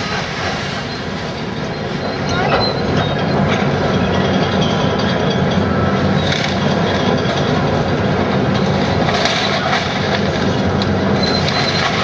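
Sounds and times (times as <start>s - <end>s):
heavy diesel machinery running: 0.0s - 12.0s.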